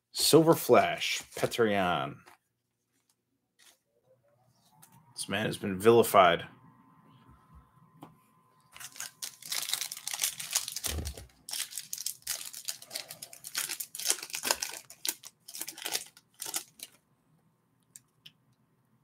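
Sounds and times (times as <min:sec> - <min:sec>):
wrapper tearing and crinkling: 0:08.8 - 0:17.0.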